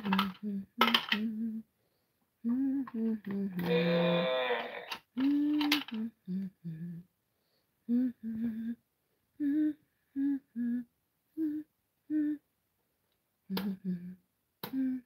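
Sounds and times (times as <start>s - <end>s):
person humming short notes: 2.4s - 7.0s, 7.9s - 8.8s, 9.4s - 12.4s, 13.5s - 15.0s.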